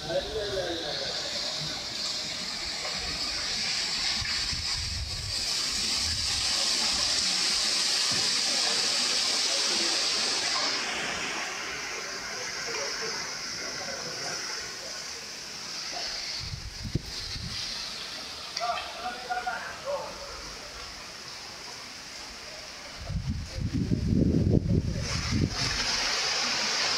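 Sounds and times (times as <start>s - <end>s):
wind rushing through leaves: 0.0s - 26.9s
wind buffeting microphone: 4.1s - 6.5s, 16.4s - 17.8s, 23.0s - 26.2s.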